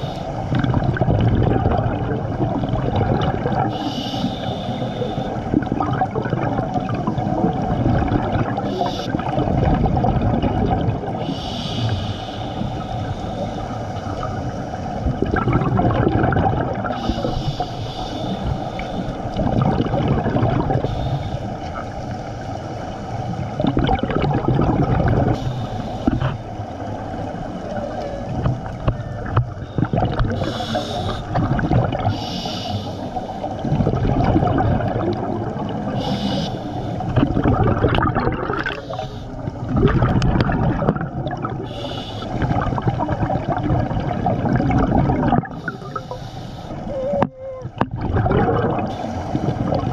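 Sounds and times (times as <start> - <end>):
underwater exhaled bubbles: 0.0 - 49.9
regulator breath hissing: 3.7 - 5.4, 8.6 - 9.2, 11.2 - 14.7, 17.0 - 19.2, 20.8 - 21.6, 25.3 - 26.5, 30.3 - 31.4, 32.1 - 33.5, 35.9 - 37.1, 38.8 - 39.5, 41.6 - 42.5, 45.6 - 47.1.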